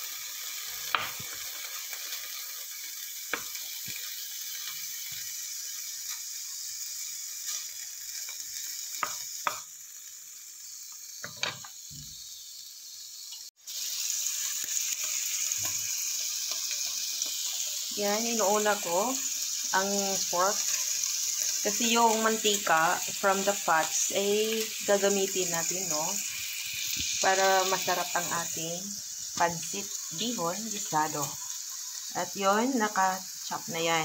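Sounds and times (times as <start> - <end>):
pork sizzling in a pan: 0.0 - 34.0
wooden spoon knocking a pan: 9.0 - 9.6.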